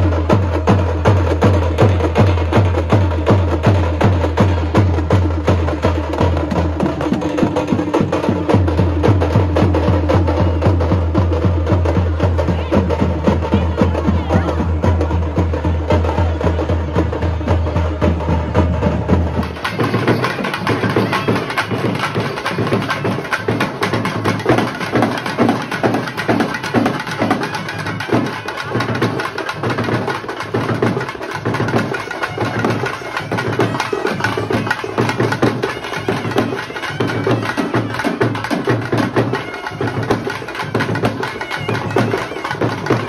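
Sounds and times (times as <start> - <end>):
barrel drums drumming: 0.0 - 43.0.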